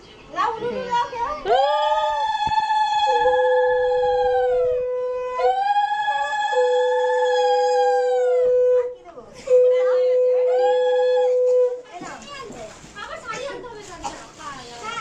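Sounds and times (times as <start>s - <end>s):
low conch shell blast: 2.9s - 5.8s, 6.4s - 11.9s
high conch shell blast: 9.4s - 11.9s.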